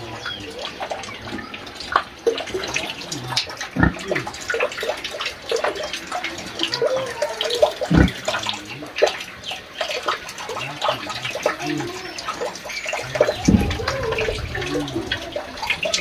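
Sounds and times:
pigs coughing: 0:02.6 - 0:04.8, 0:06.4 - 0:09.0
pigs snuffling and grunting: 0:07.6 - 0:08.8.

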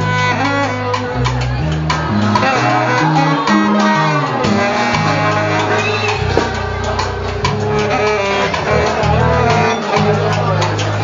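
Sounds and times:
background music with bass line: 0:00.0 - 0:11.0.

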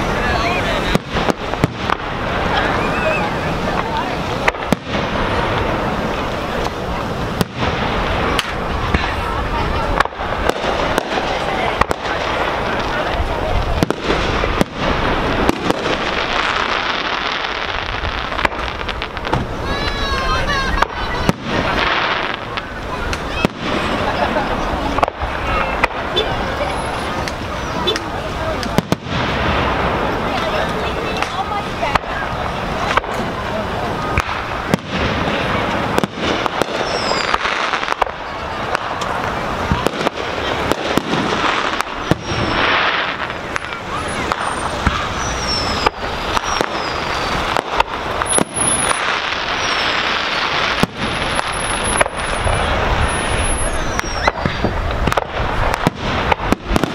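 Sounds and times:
background rumble: 0:00.0 - 0:56.9
steady fireworks noise: 0:00.0 - 0:56.9
firework shells bursting: 0:34.1 - 0:56.9.

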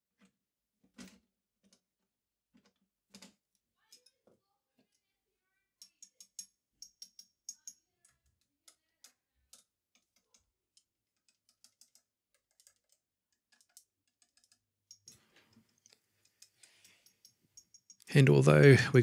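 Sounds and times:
stick tapping glass tubes: 0:06.0 - 0:07.8, 0:10.7 - 0:18.1.

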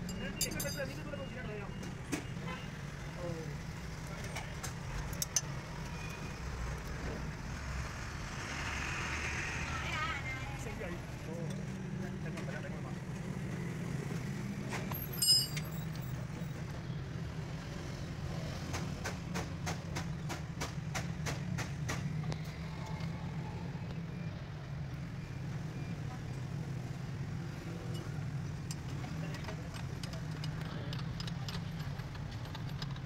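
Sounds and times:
sharp metallic clink: 0:00.0 - 0:01.0, 0:15.0 - 0:15.7.

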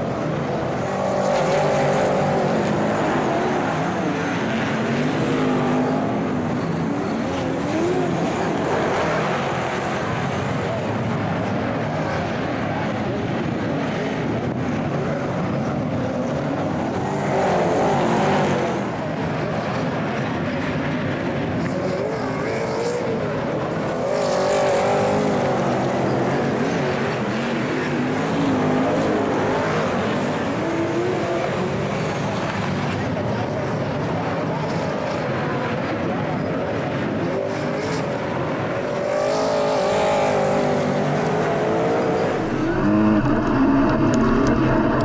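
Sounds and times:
race car engines revving: 0:00.0 - 0:45.0.

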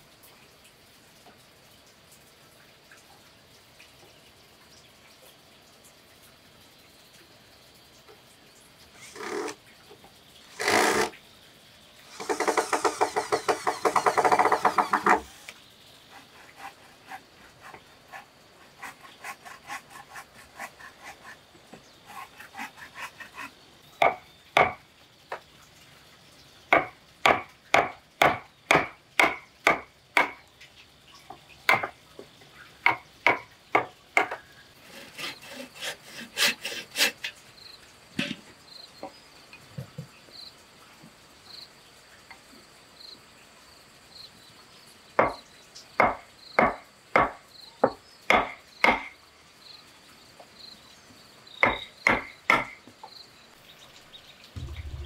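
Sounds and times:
bow saw cutting a board: 0:09.0 - 0:09.6, 0:10.5 - 0:11.2, 0:12.1 - 0:21.4, 0:22.1 - 0:23.6, 0:34.8 - 0:37.4
wood rasping strokes: 0:09.0 - 0:09.6, 0:10.5 - 0:11.1, 0:12.1 - 0:15.5, 0:16.1 - 0:21.4, 0:22.1 - 0:23.6, 0:34.8 - 0:37.4
sharp knocks on wood: 0:24.0 - 0:24.8, 0:26.7 - 0:30.4, 0:45.2 - 0:45.4, 0:46.0 - 0:49.1, 0:51.6 - 0:52.8.

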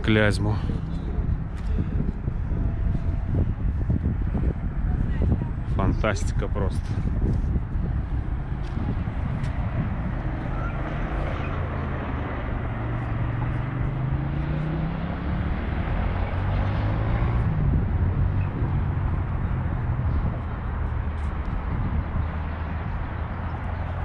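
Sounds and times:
traffic going by: 0:00.0 - 0:24.0
vehicle engine accelerating: 0:06.9 - 0:24.0.

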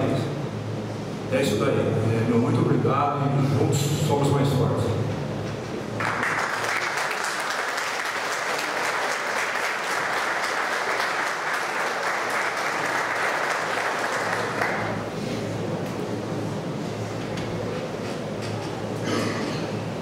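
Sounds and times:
people applauding: 0:06.0 - 0:15.1.

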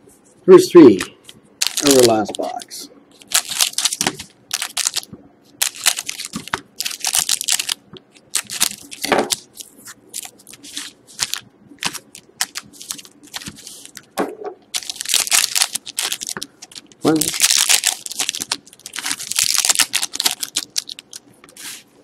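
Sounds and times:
foil wrappers crinkling: 0:01.6 - 0:21.9.

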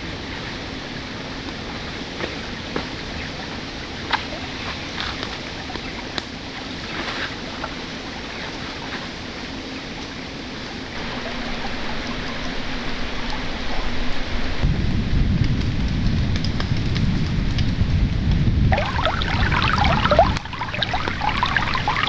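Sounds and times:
steady rain: 0:00.0 - 0:22.0
deep rumble: 0:11.0 - 0:22.0.

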